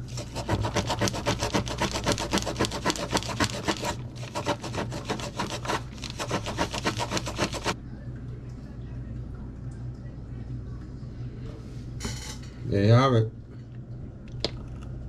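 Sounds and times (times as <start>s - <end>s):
sandpaper rasping on wood: 0.0s - 7.8s.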